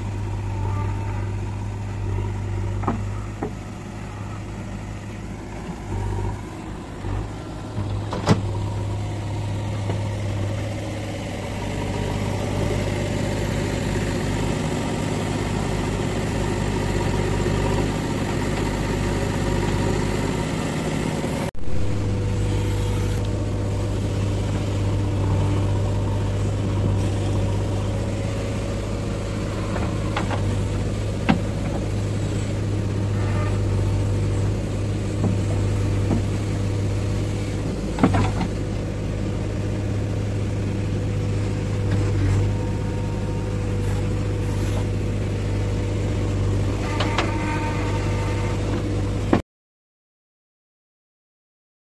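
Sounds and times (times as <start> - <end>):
diesel engine under load: 0.0 - 49.4
bucket and arm clanking: 25.5 - 39.0.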